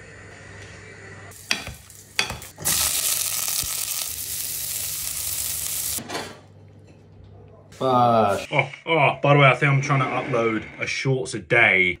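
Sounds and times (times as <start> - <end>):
asparagus sizzling in a frying pan: 1.4 - 6.0.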